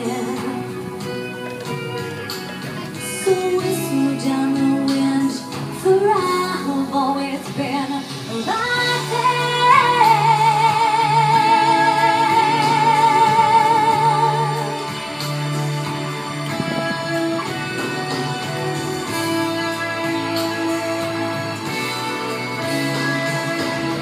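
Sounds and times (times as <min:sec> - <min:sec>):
woman singing with vibrato: 0:00.0 - 0:01.0, 0:03.0 - 0:24.0
backing music: 0:00.0 - 0:24.0.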